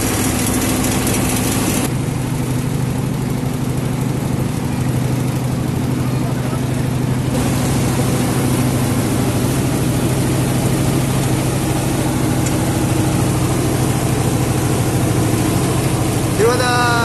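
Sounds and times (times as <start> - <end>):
boat engine drone: 0.0 - 17.0
wind and water hiss: 7.4 - 16.4.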